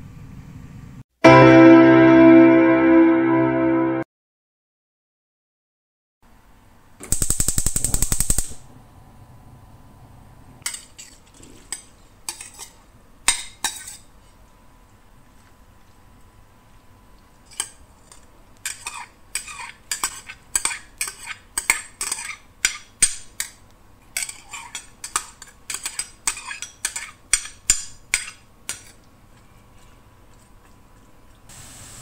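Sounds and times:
metal spatula scraping a wok: 0:17.5 - 0:22.5.

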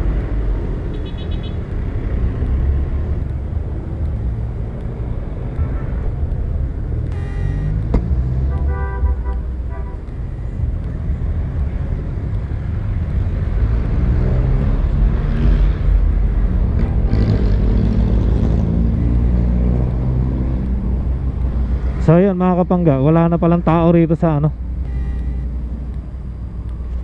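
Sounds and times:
roadside traffic rumble: 0:00.0 - 0:27.0
short beeps: 0:07.1 - 0:07.8, 0:10.2 - 0:10.7, 0:24.8 - 0:25.6.

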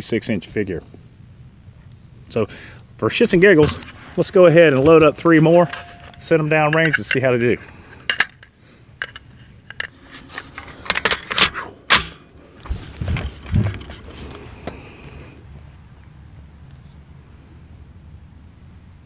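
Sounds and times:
sharp metallic clacks of rifle: 0:10.9 - 0:12.3.

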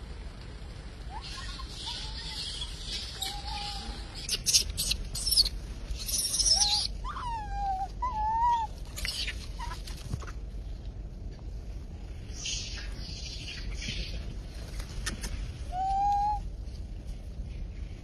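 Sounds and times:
monkeys whistle-like calls: 0:01.1 - 0:09.8, 0:15.7 - 0:16.4
monkeys shrill cries: 0:01.1 - 0:10.3, 0:15.7 - 0:16.4.

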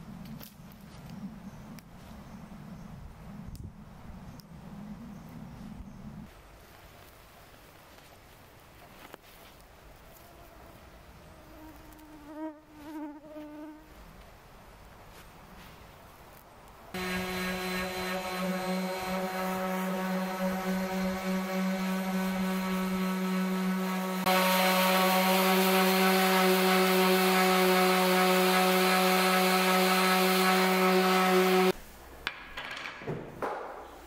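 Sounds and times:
orbit sander running: 0:17.0 - 0:31.8.

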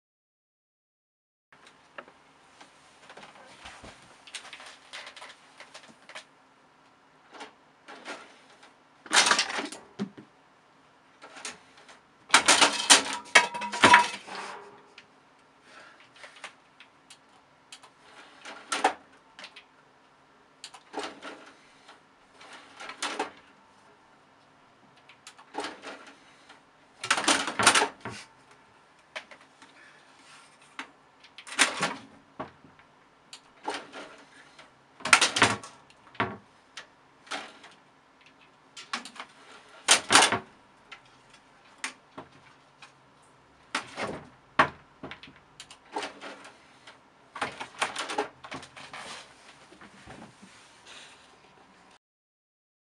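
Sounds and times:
plastic knocks and rattles: 0:09.1 - 0:10.3, 0:35.0 - 0:36.5, 0:43.7 - 0:46.5.

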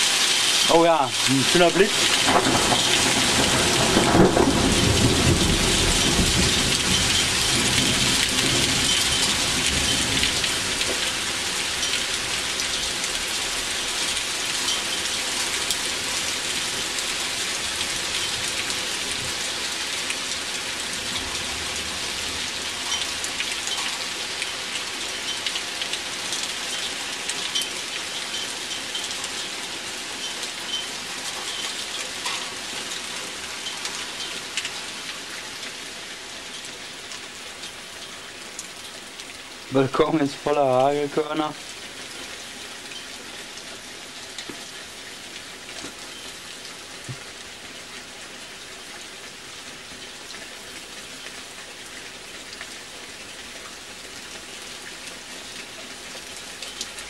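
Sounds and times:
heavy rain and hail: 0:00.0 - 0:57.0
thunder rumbling: 0:02.0 - 0:09.0.

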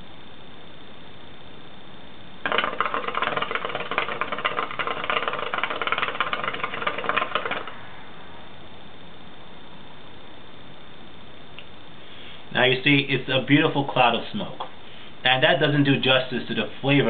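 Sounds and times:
water bubbling in hookah: 0:02.5 - 0:07.7.

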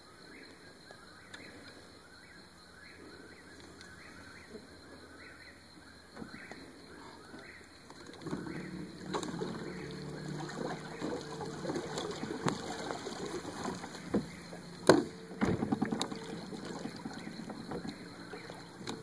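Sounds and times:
low steady hum: 0:08.0 - 0:19.0
water sounds: 0:08.0 - 0:19.0
knocks and rattles on boat hull: 0:08.2 - 0:19.0.

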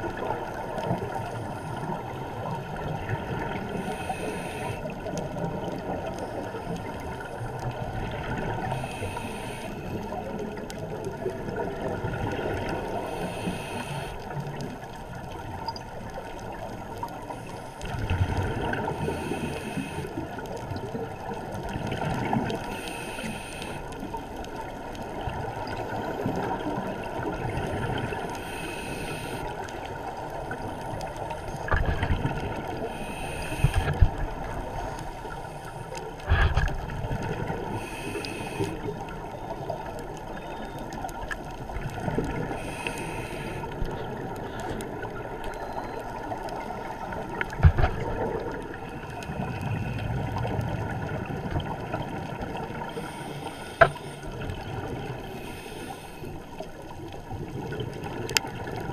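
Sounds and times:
steady underwater noise: 0:00.0 - 0:58.9
regulator inhale hiss: 0:03.6 - 0:05.2, 0:08.6 - 0:10.4, 0:12.9 - 0:14.4, 0:18.9 - 0:20.4, 0:22.6 - 0:24.1, 0:27.5 - 0:30.2, 0:32.8 - 0:36.7, 0:37.4 - 0:39.0, 0:42.4 - 0:44.0, 0:52.8 - 0:56.7
gurgling exhaled bubbles: 0:17.8 - 0:19.5, 0:36.1 - 0:55.4.

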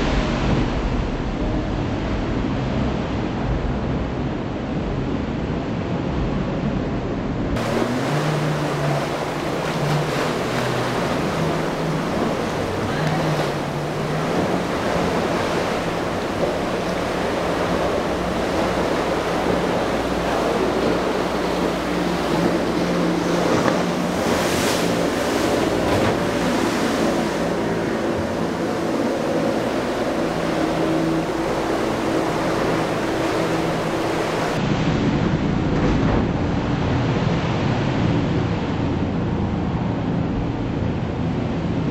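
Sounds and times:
waves breaking: 0:00.0 - 0:41.9
wind on microphone: 0:00.0 - 0:41.9
outboard motor humming: 0:07.6 - 0:34.6.

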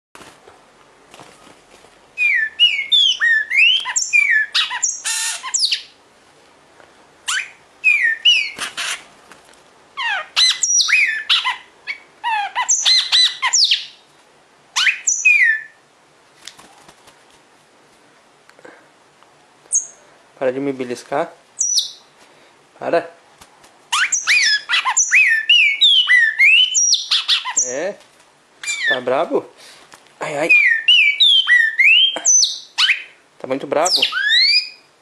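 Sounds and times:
bird chirping sharply: 0:02.2 - 0:05.9, 0:07.3 - 0:09.0, 0:10.0 - 0:14.0, 0:21.6 - 0:22.1, 0:23.9 - 0:27.8, 0:33.9 - 0:34.9.

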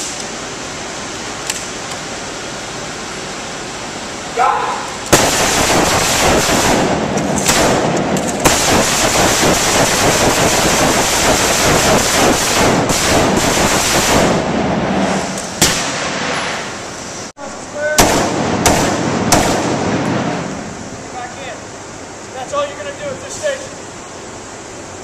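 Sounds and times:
single loud gunshot: 0:05.1 - 0:08.8, 0:15.6 - 0:16.4, 0:18.0 - 0:20.4
rapid overlapping gunfire: 0:05.1 - 0:14.6, 0:18.0 - 0:20.5.

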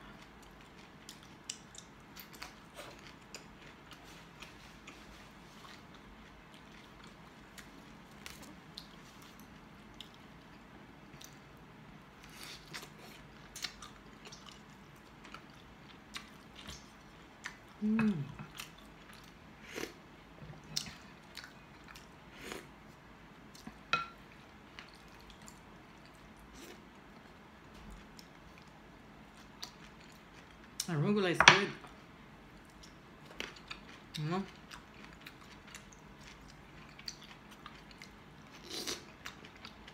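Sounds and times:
person humming: 0:17.8 - 0:18.4.

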